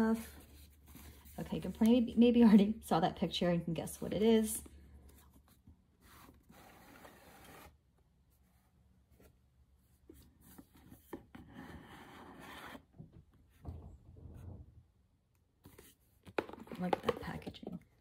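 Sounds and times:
cardboard box scraping: 0:06.0 - 0:07.8, 0:11.0 - 0:12.9.

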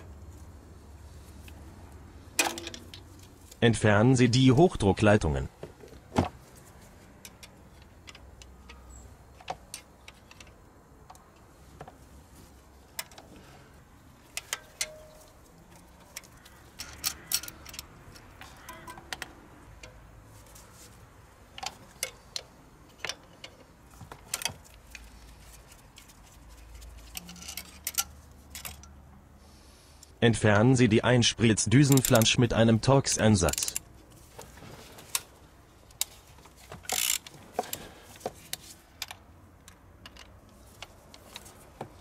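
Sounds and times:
light metallic clicks and clinks: 0:14.2 - 0:20.2, 0:21.5 - 0:29.0.

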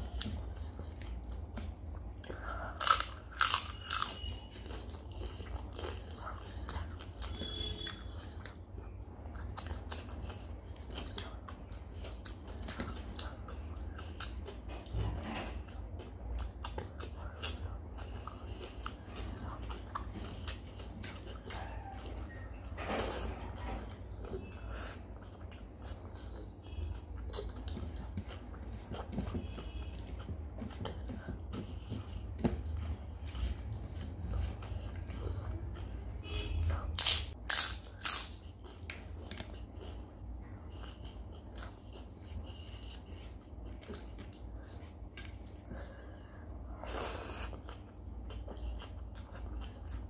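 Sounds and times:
chewing with wet mouth clicks: 0:00.0 - 0:22.7, 0:23.5 - 0:50.0
loud crisp crunches: 0:37.0 - 0:38.4.

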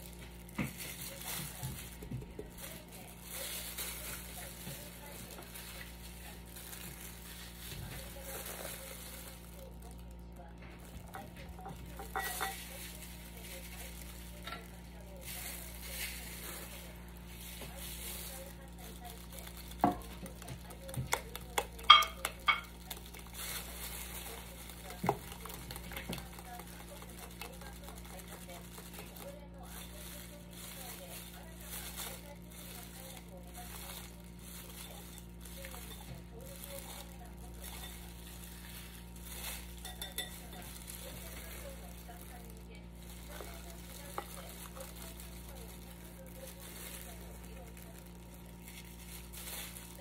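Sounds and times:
whisk clinking in glass bowl: 0:21.8 - 0:22.8, 0:39.7 - 0:40.8.

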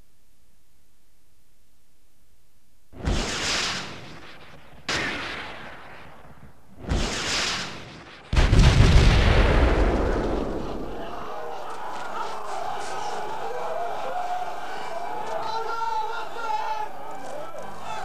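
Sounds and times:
heavy explosions: 0:03.0 - 0:11.2.

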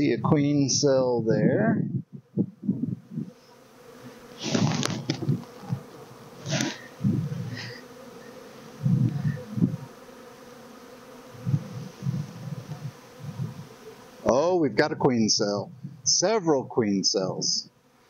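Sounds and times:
honeybees buzzing: 0:02.1 - 0:14.6, 0:17.1 - 0:18.0
hive frames being pried: 0:04.4 - 0:06.8.

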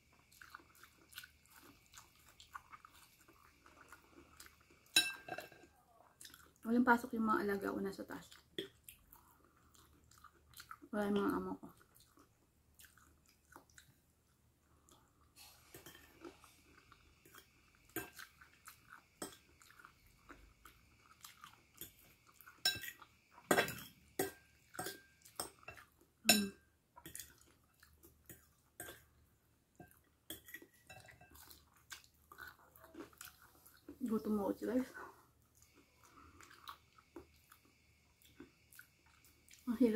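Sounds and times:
chewing: 0:00.1 - 0:06.7, 0:08.2 - 0:10.9, 0:11.6 - 0:23.5, 0:24.3 - 0:26.1, 0:27.0 - 0:29.2, 0:29.8 - 0:34.1, 0:34.9 - 0:39.7
fork clinking on ceramic plate: 0:04.9 - 0:05.6, 0:22.6 - 0:27.2.

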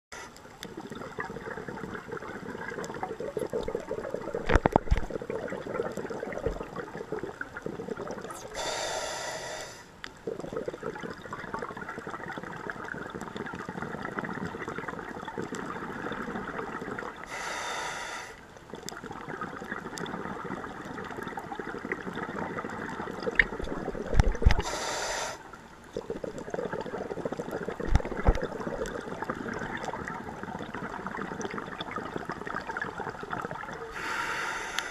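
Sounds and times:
underwater crackling: 0:00.1 - 0:34.9
regulator inhalation hiss: 0:08.4 - 0:10.0, 0:17.3 - 0:18.4, 0:24.6 - 0:25.5, 0:33.9 - 0:34.9.

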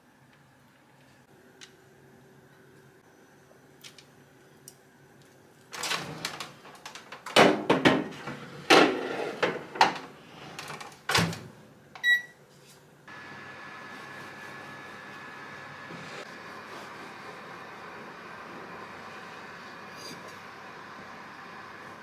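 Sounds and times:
kitchen appliance humming: 0:13.1 - 0:22.0.

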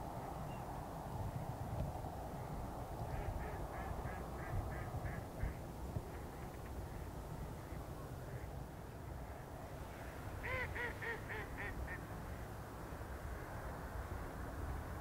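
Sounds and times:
waterfowl nasal calls: 0:10.4 - 0:12.0.

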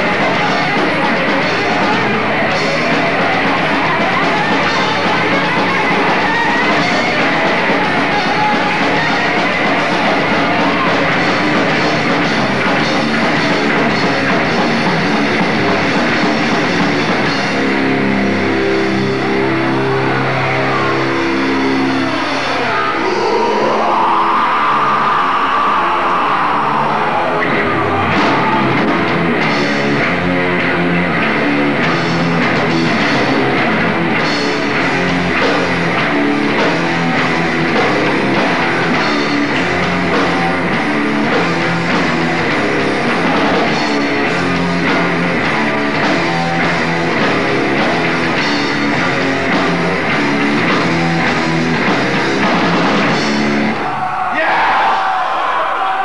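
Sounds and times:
bass guitar: 0:00.0 - 0:56.0
distorted electric guitars: 0:00.0 - 0:56.0
drum kit: 0:00.0 - 0:56.0.

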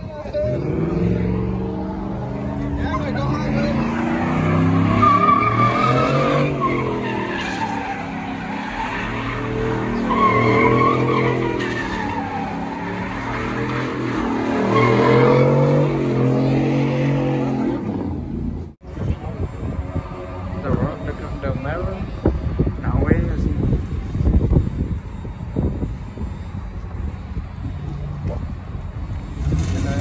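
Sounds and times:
tyres squealing and skidding: 0:00.0 - 0:18.5
truck engine revving: 0:00.0 - 0:18.7, 0:24.2 - 0:30.0.

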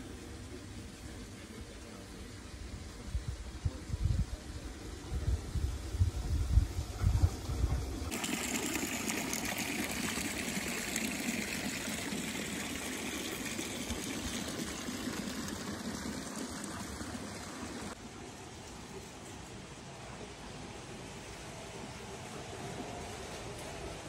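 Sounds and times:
wind on microphone: 0:05.1 - 0:08.1
water splashing from spout: 0:08.1 - 0:18.0.

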